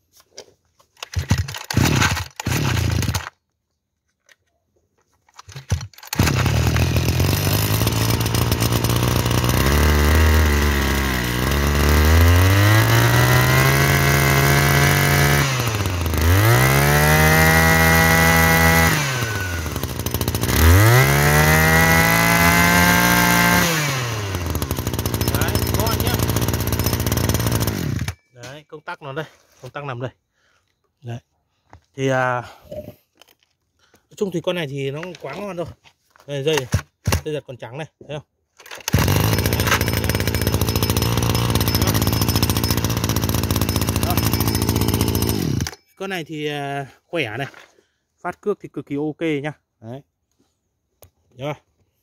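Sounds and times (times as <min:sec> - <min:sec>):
starter cord pulls: 0:00.2 - 0:03.4, 0:04.2 - 0:11.5, 0:21.6 - 0:28.2, 0:38.6 - 0:46.0
brush cutter engine revving: 0:01.0 - 0:03.4, 0:05.5 - 0:28.2, 0:38.6 - 0:45.8.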